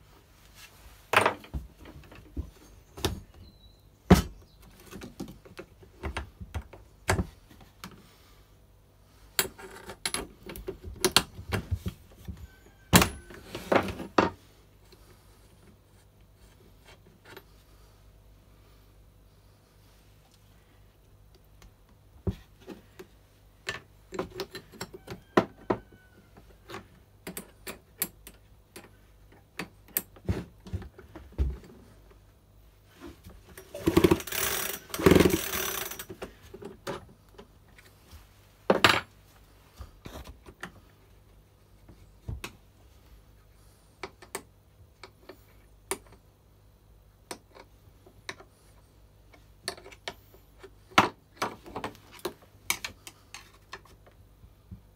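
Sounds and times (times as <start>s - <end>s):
tools clicking on parts: 33.6s - 36.3s.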